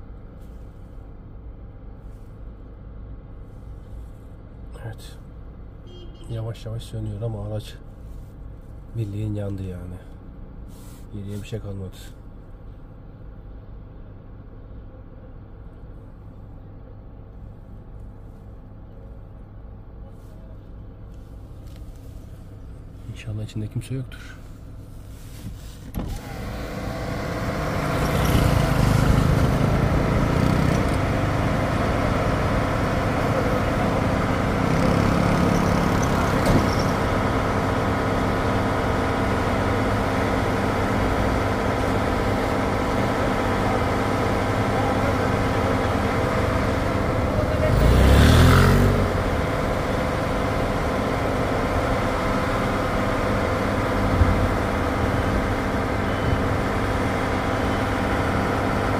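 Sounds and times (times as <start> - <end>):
vehicle engine running: 24.1 - 58.9
vehicle passing: 26.5 - 36.5, 46.6 - 50.4.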